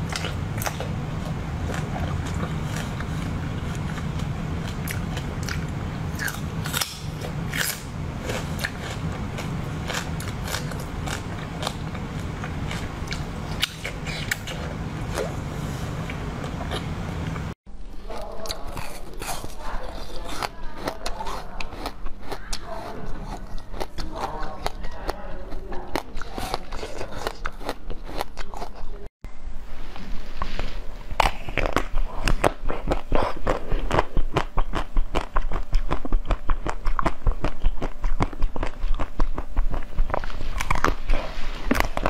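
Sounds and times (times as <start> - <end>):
person chewing with crunches: 0.0 - 29.1, 30.0 - 42.0.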